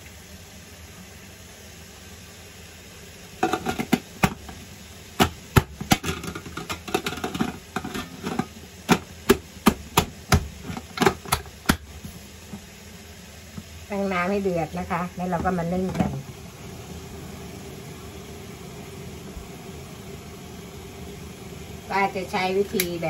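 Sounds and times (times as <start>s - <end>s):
metal steamer lid clattering: 3.4s - 4.6s, 5.2s - 11.8s.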